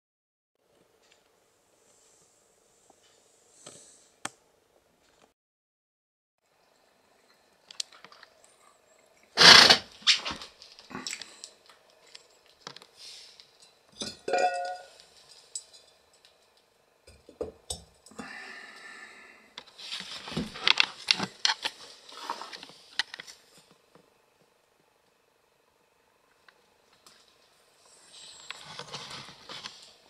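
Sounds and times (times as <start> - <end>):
flowerpots and glass clinking on tray: 13.6 - 16.4.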